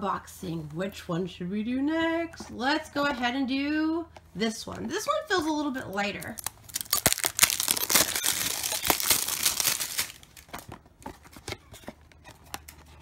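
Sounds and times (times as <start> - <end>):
cardboard box tearing: 6.4 - 13.0.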